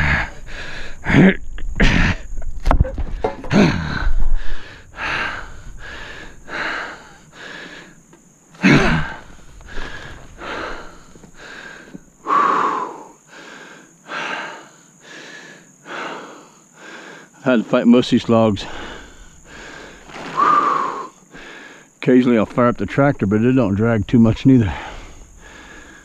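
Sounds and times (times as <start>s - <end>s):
man panting hard: 0.0s - 1.1s, 3.2s - 8.0s, 8.7s - 17.4s, 18.6s - 22.0s, 24.6s - 26.0s.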